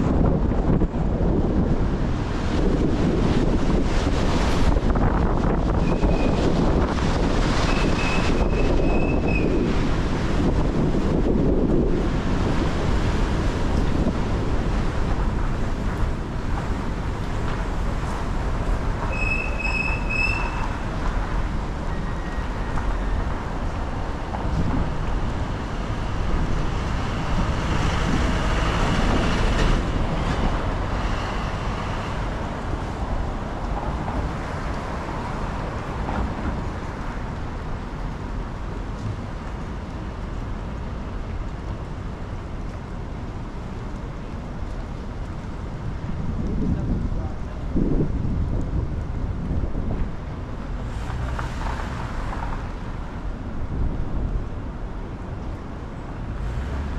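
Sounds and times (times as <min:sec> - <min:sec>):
tyres hissing on wet road: 0:01.2 - 0:56.9
high-pitched squeal: 0:19.1 - 0:20.8.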